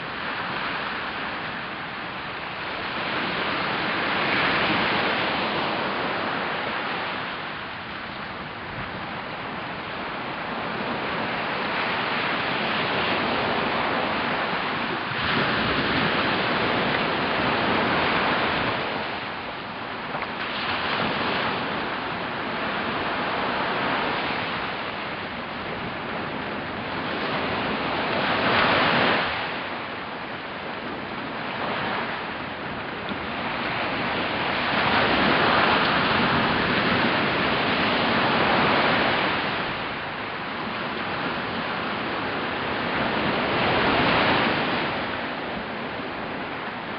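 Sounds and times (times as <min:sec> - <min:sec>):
surf breaking on beach: 0:00.0 - 0:46.9.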